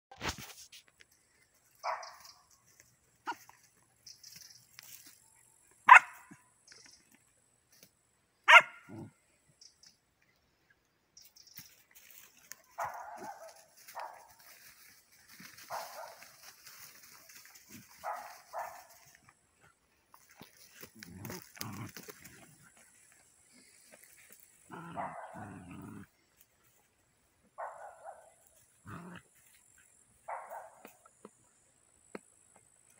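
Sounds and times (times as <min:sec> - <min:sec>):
dogs barking: 0:01.8 - 0:02.3, 0:05.9 - 0:06.4, 0:08.5 - 0:09.1, 0:12.7 - 0:14.4, 0:15.6 - 0:16.5, 0:17.8 - 0:19.2, 0:24.7 - 0:26.0, 0:27.6 - 0:29.2, 0:30.2 - 0:31.0
dog growling: 0:24.7 - 0:26.1, 0:28.8 - 0:29.3.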